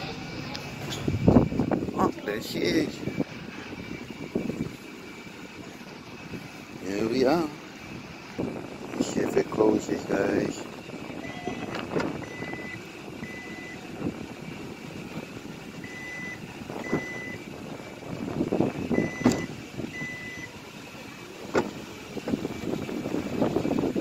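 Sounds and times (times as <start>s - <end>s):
tailgate shutting click: 11.4s - 12.7s, 18.9s - 20.6s, 21.4s - 22.4s
short high warning beeps: 15.9s - 17.4s.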